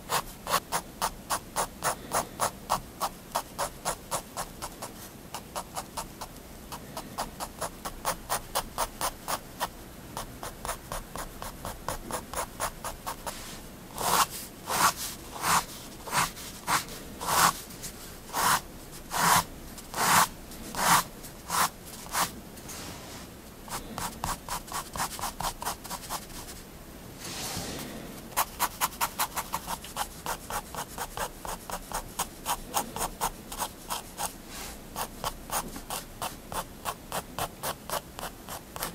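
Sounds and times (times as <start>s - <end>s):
pen tip scratching paper: 18.4s - 22.3s.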